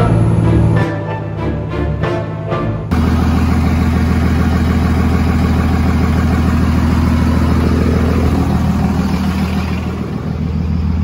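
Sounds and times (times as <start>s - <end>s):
diesel engine idling: 2.9s - 11.0s.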